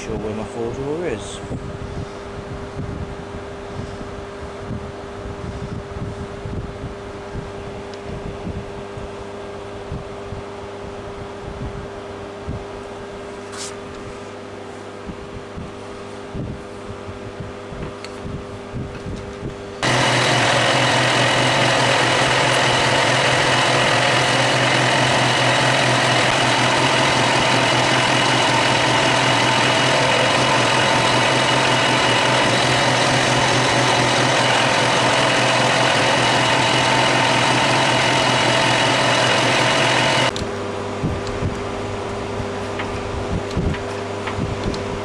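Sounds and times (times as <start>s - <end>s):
metal lathe running: 19.8s - 40.3s.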